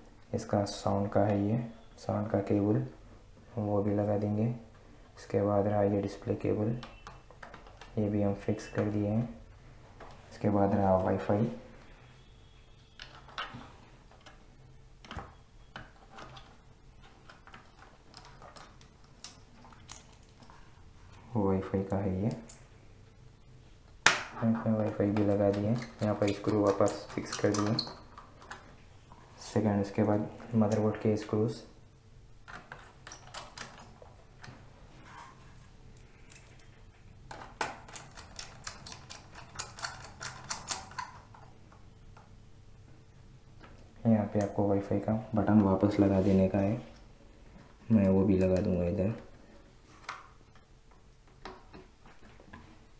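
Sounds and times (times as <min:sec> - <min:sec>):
clicks of small parts being handled: 0:36.0 - 0:36.7.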